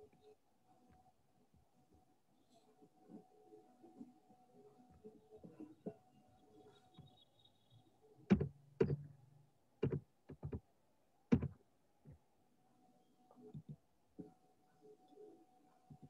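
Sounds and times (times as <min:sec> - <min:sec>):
sharp knocks and thumps: 0:08.3 - 0:09.1, 0:09.8 - 0:10.6, 0:11.3 - 0:11.6.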